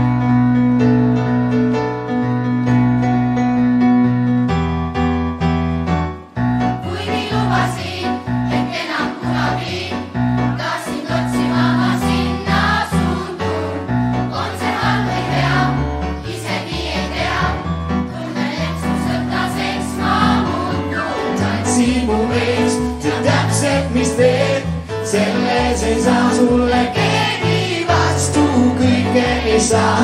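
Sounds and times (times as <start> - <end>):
upbeat pop keyboard music: 0.0 - 30.0
choir singing: 6.8 - 30.0.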